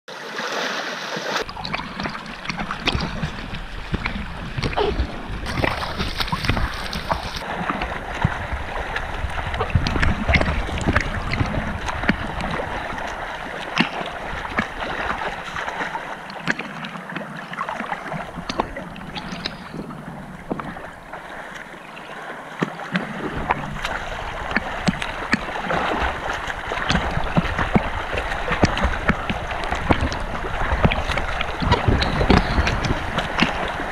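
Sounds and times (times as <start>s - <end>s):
water splashing from swimmers: 0.1s - 33.9s
wind rumbling on microphone: 1.4s - 15.9s, 23.0s - 33.9s.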